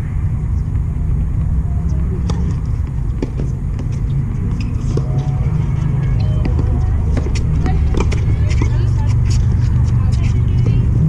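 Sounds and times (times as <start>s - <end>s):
tennis balls knocking on court: 2.2s - 5.4s, 6.3s - 8.8s.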